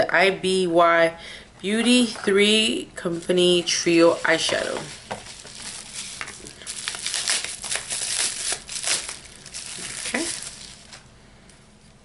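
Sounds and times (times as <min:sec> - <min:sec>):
packaging crinkling: 0:03.1 - 0:11.1.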